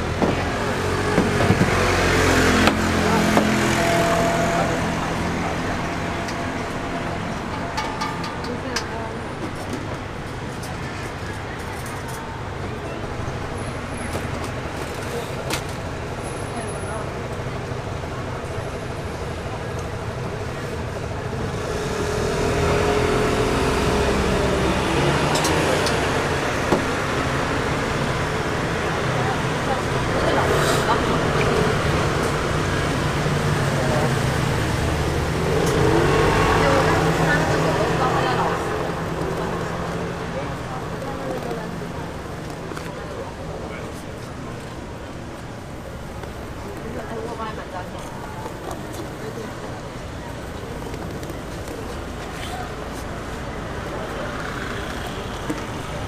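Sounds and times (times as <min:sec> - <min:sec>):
faint voices: 0:00.0 - 0:56.0
street market din: 0:00.0 - 0:56.0
traffic: 0:00.0 - 0:56.0.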